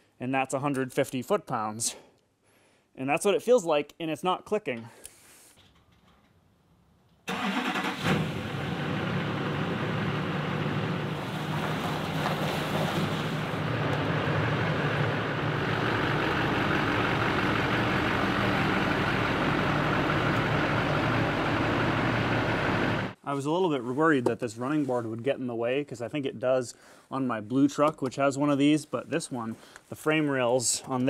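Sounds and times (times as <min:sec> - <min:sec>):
truck engine running at low speed: 0:08.1 - 0:23.2.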